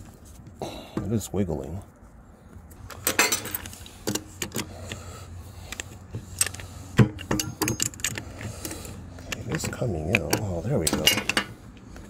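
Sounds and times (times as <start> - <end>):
metal cogs clinking: 2.8 - 4.7, 5.7 - 11.9
wrench clanking: 6.3 - 11.6.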